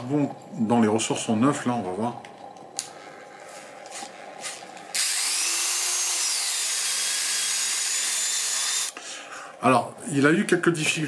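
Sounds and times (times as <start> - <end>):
rotary tool motor whining: 2.9 - 9.0.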